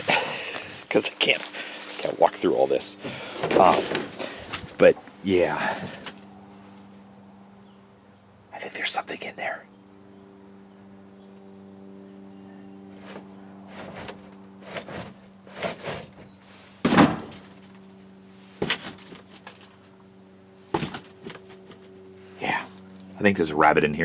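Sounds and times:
steady low hum: 0.0s - 24.0s
knocks and rustles of plastic props: 13.1s - 17.8s, 18.6s - 19.9s, 20.7s - 21.9s
thump: 16.8s - 17.4s.

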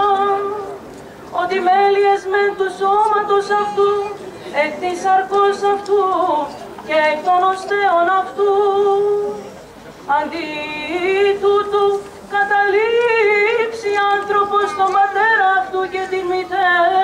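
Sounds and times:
person chanting unaccompanied: 10.1s - 17.0s.

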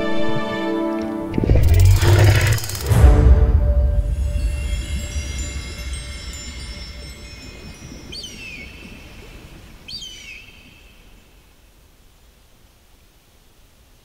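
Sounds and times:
low rumble: 1.3s - 8.2s
shimmering chime-like tones: 3.9s - 9.5s
whistled calls falling in pitch: 5.0s - 11.1s.

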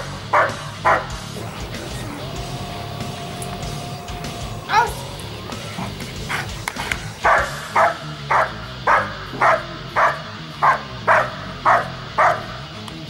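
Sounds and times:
dog barking steadily: 0.0s - 12.8s.

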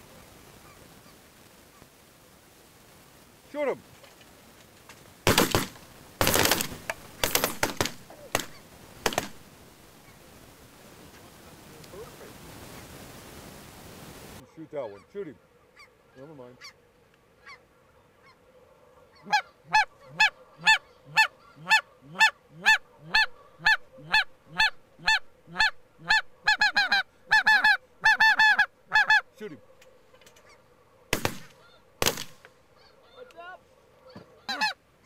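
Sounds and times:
shotgun shots: 5.2s - 9.4s, 31.1s - 32.5s
goose honking: 17.4s - 18.4s, 19.0s - 29.5s, 32.7s - 34.8s.

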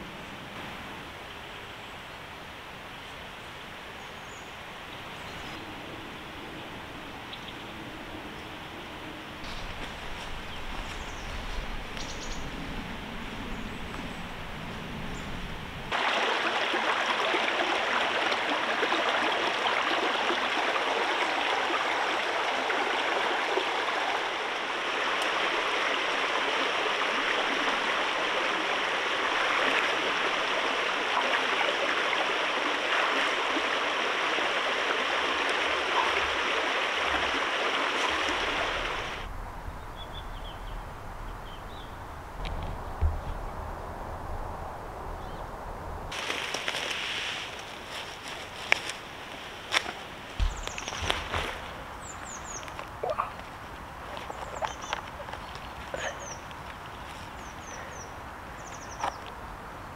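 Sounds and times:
stream rushing over rocks: 15.9s - 39.3s, 46.1s - 59.9s.

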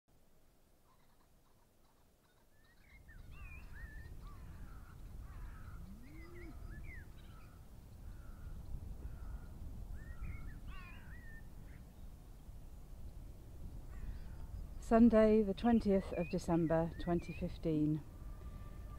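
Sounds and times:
wind rumbling on microphone: 2.9s - 18.9s
crows cawing: 4.2s - 9.6s, 13.9s - 14.5s.

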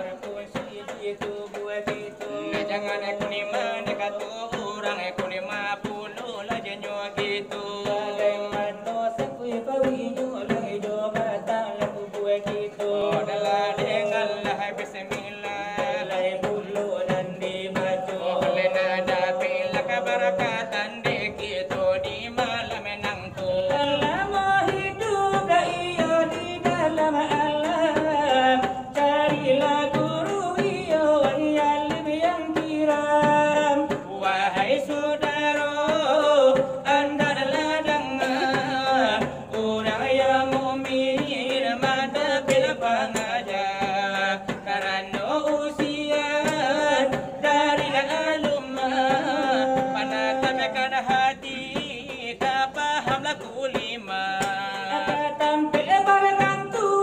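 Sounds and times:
men singing: 0.0s - 57.0s.

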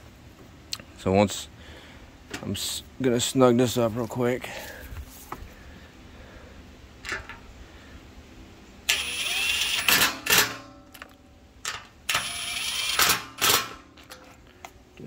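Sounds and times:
impact driver spinning: 8.9s - 10.6s.

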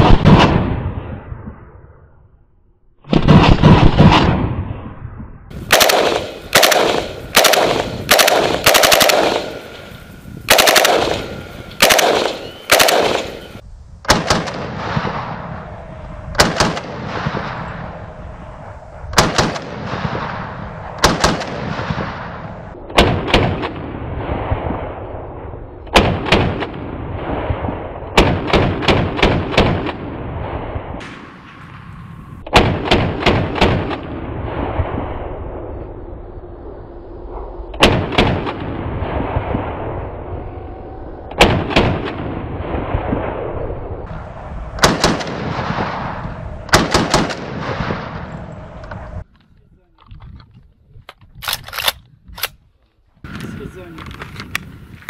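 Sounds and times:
rifle firing with echo: 5.5s - 15.5s, 16.4s - 18.0s, 19.1s - 31.9s, 32.5s - 35.8s, 37.8s - 40.0s, 41.4s - 48.8s.

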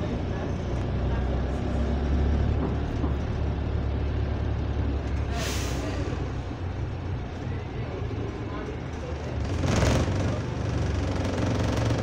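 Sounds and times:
bus engine droning: 0.0s - 12.0s
air brake hiss: 5.3s - 6.0s.

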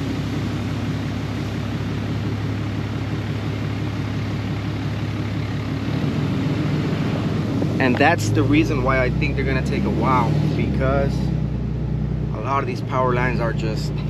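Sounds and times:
truck engine humming: 0.0s - 14.0s.

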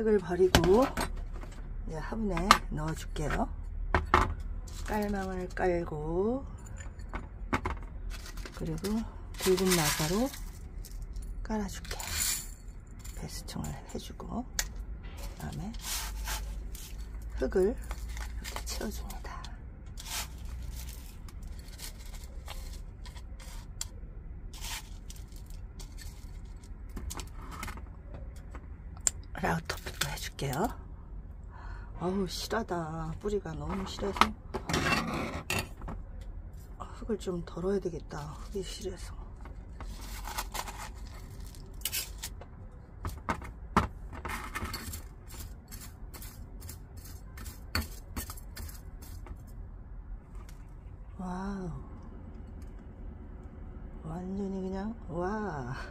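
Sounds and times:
soil scooped and poured: 9.4s - 10.6s, 15.4s - 19.1s, 19.9s - 23.9s, 24.5s - 26.6s
tweezers scraping potting mix: 15.2s - 26.4s.

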